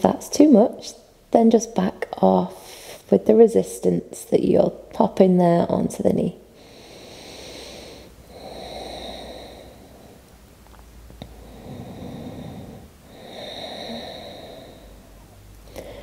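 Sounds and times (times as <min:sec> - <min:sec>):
woman breathing deeply: 0:06.5 - 0:10.3, 0:11.2 - 0:16.0.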